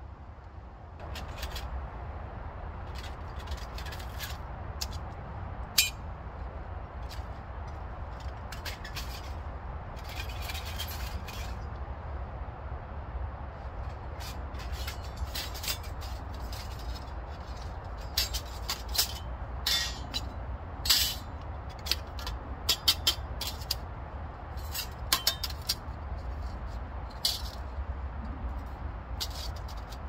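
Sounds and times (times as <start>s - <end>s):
steady low rumble: 0.0s - 30.0s
metal panels clinking: 7.0s - 11.7s, 13.8s - 23.9s, 24.5s - 30.0s.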